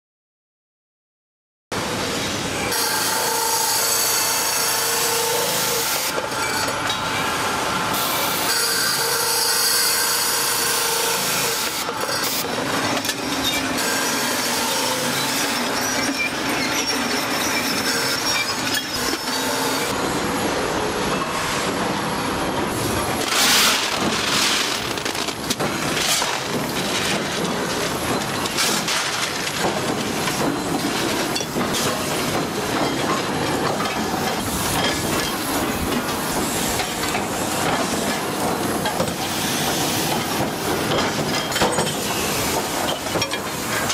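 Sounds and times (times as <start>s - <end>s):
heavy factory machinery: 1.8s - 43.9s
circular saw cutting metal: 2.7s - 20.0s.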